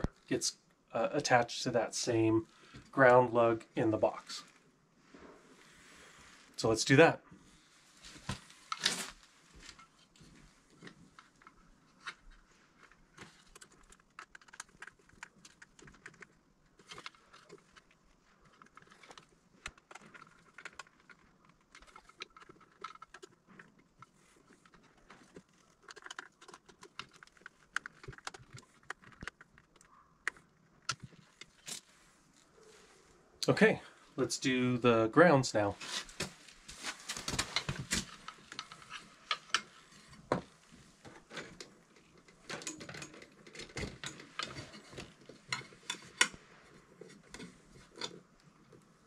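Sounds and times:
clicks and taps of wiring: 9.6 - 31.9, 36.2 - 48.8.

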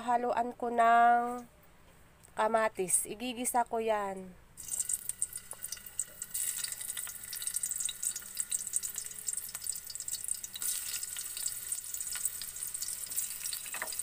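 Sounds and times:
ginger sizzling in hot oil: 4.6 - 14.0.

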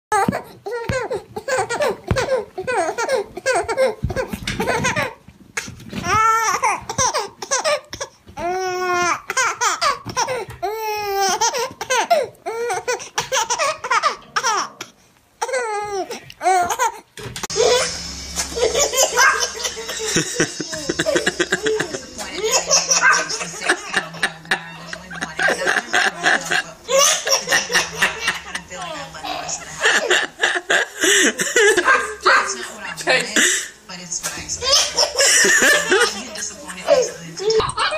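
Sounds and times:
baby laughing and squealing: 0.1 - 5.2, 15.4 - 24.0, 34.6 - 36.2
room background noise: 0.1 - 37.9.

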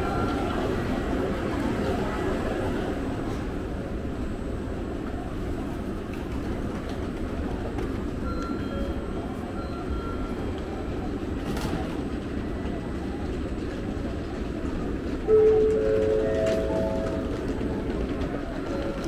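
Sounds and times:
train humming at platform: 0.0 - 19.0
platform noise: 15.2 - 19.0.

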